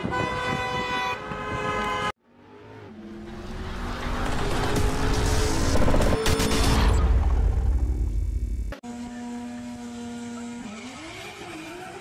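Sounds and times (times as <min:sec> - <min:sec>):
car horn: 0:00.0 - 0:02.2.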